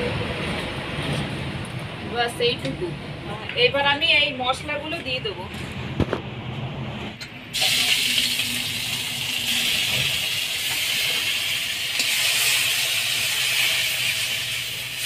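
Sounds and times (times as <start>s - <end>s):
paste sizzling in hot oil: 7.5s - 15.0s.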